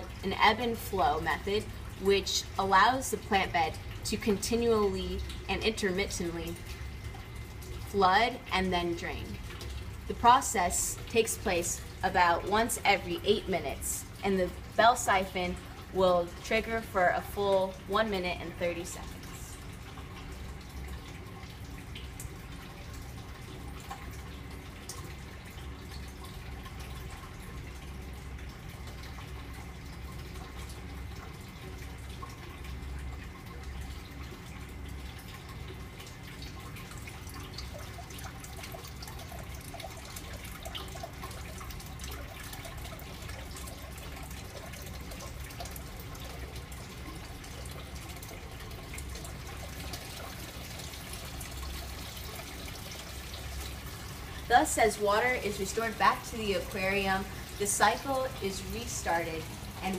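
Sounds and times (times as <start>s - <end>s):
water trickling into aquarium: 0.0s - 59.9s.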